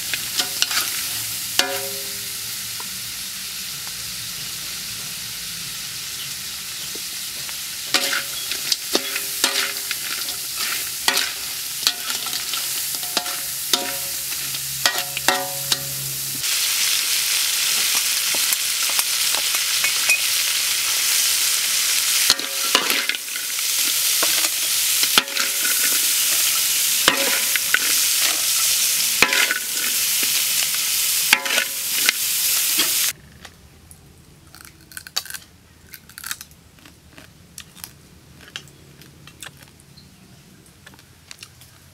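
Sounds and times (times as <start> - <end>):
crabs sizzling in a wok: 0.0 - 33.2
spatula scraping a pan: 0.4 - 1.1, 7.9 - 16.0.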